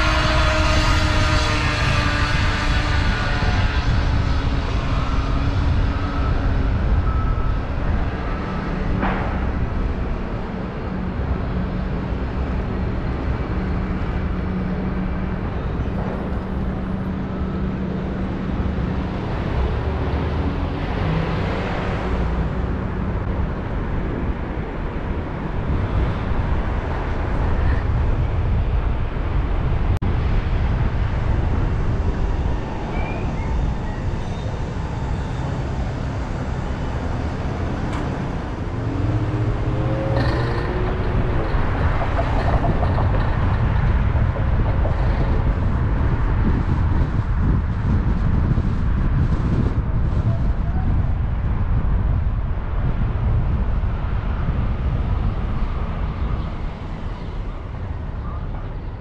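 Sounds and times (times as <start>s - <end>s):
other vehicles: 0.0s - 59.0s
road and tyre noise: 0.0s - 59.0s.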